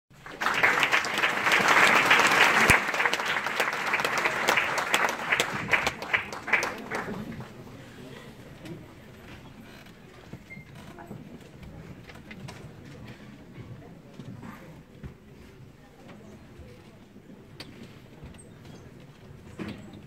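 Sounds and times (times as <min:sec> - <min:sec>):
audience applauding: 0:00.1 - 0:07.7.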